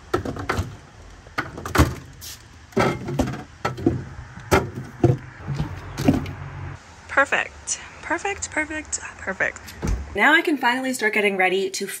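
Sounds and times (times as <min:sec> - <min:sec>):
plastic bottles knocking: 0:00.0 - 0:00.8, 0:02.8 - 0:06.4.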